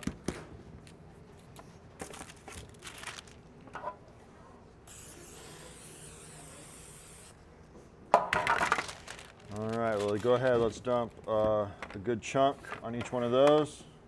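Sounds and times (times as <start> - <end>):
aerosol spray hissing: 4.9 - 7.3.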